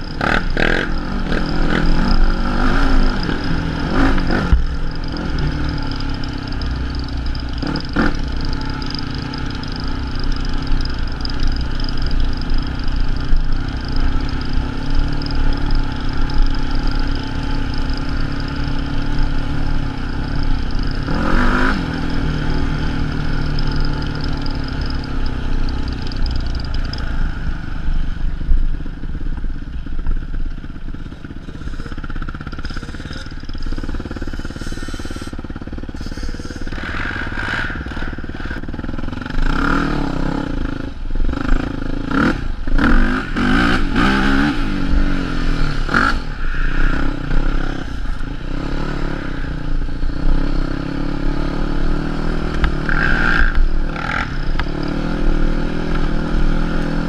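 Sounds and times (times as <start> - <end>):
quad engine revving: 0.0 - 27.5, 31.0 - 57.0
clatter: 0.0 - 57.0.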